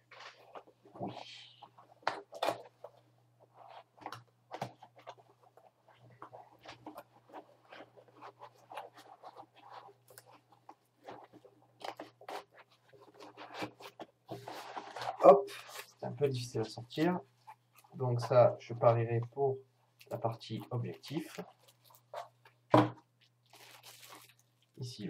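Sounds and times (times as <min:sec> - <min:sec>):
cardboard and paper rustling: 0:00.0 - 0:16.2, 0:23.5 - 0:24.5.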